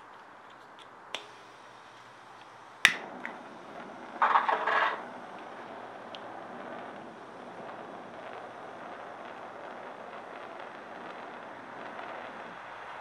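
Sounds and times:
gas igniting rush: 0.0s - 13.0s
hiss of burning flame: 0.0s - 13.0s
lighter clicks: 0.1s - 3.4s.

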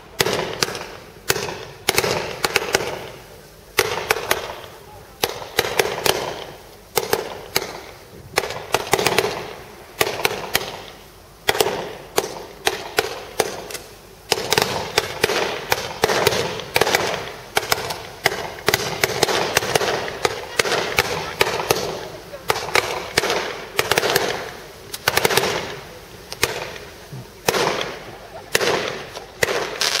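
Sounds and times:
fireworks bursting with sharp bangs: 0.0s - 30.0s.

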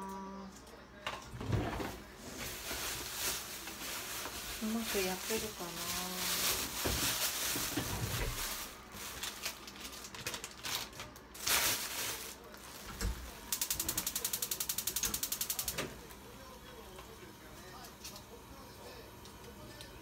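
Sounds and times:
plastic bag crinkling: 2.3s - 15.7s.

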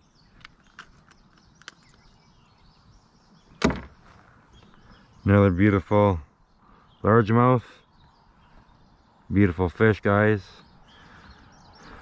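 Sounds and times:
sharp thump: 3.6s - 4.0s.

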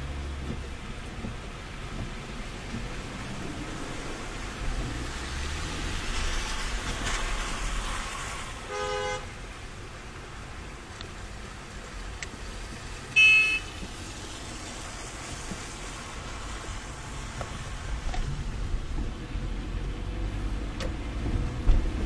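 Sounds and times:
tyres hissing on wet road: 0.0s - 22.0s
car horn toots: 8.7s - 9.3s, 13.2s - 13.8s.

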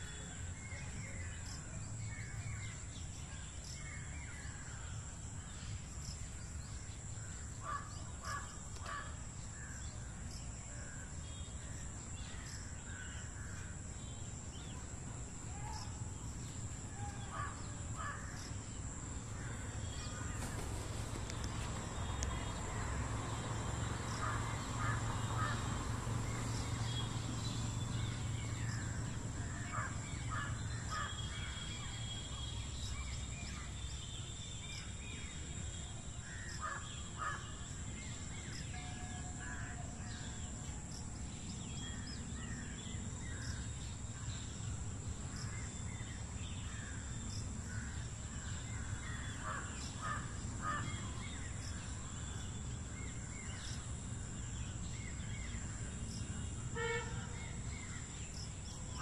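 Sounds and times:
birds calling: 15.7s - 33.7s.

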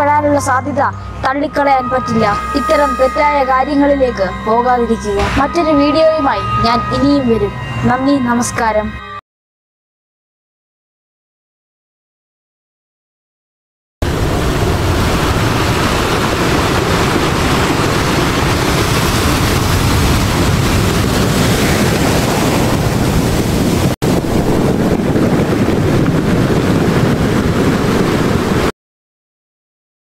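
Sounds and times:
ocean surf breaking: 14.0s - 28.7s.

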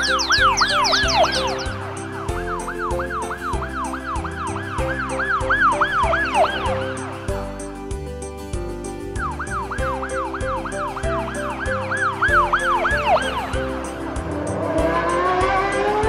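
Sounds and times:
cartoon ambulance siren: 0.0s - 1.8s, 2.4s - 7.0s, 9.2s - 13.6s
background music: 0.0s - 16.0s.

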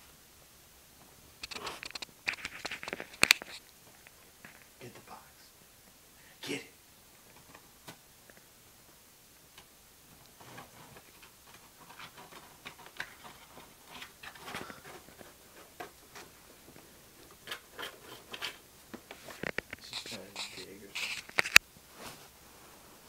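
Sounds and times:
cat scratching cardboard box: 10.4s - 16.4s, 17.3s - 18.6s, 19.2s - 21.6s.

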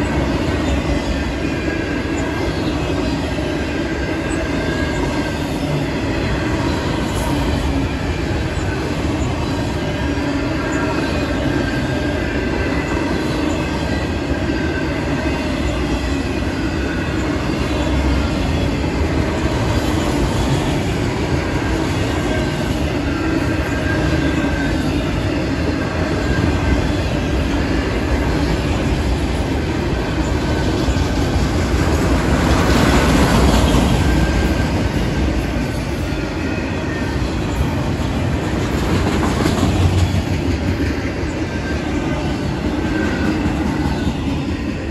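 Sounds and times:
train wheels rumbling on rail: 0.0s - 44.9s.

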